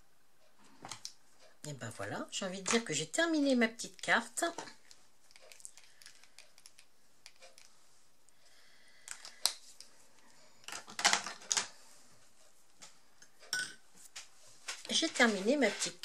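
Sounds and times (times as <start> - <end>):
marker pens clicking on mat: 3.8 - 7.8.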